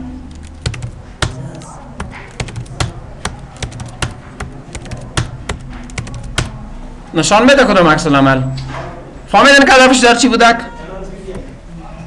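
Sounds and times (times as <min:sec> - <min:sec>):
keyboard keystrokes: 0:00.3 - 0:06.6.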